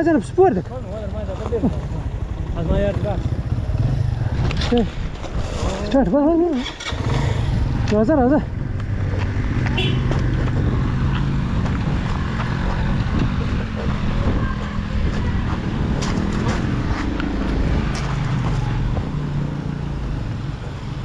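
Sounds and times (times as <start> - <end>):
motorcycle engine running: 0.0 - 5.2, 6.3 - 21.0
knocks and rattles: 9.0 - 19.2.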